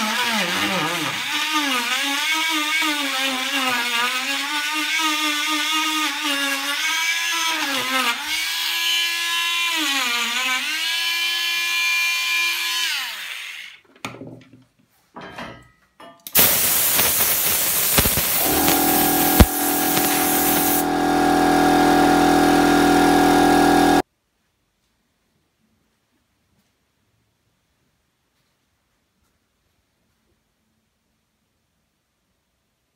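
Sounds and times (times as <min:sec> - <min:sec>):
rotary sanding tool grinding wood: 0:00.0 - 0:11.2, 0:16.4 - 0:24.0
rotary carving tool whining: 0:00.0 - 0:13.8, 0:17.4 - 0:24.0.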